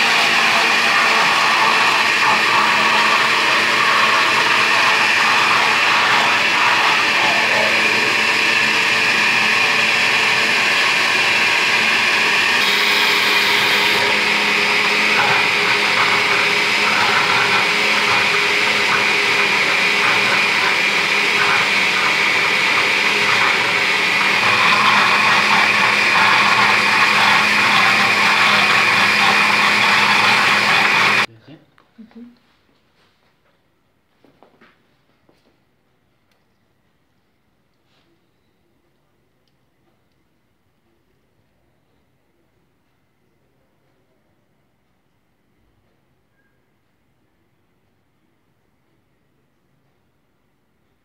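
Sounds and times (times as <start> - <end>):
blender running: 0.0 - 31.3.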